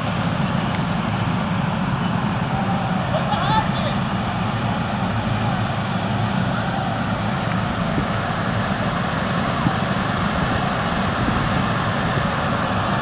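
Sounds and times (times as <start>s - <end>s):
lawn mower engines droning: 0.0s - 13.0s.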